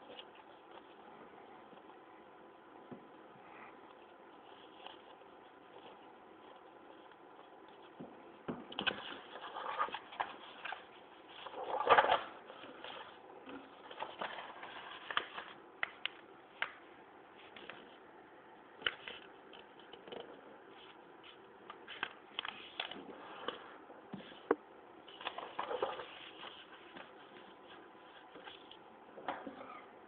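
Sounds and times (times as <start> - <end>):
paper rustling and crackling: 8.8 - 15.6, 25.1 - 28.8.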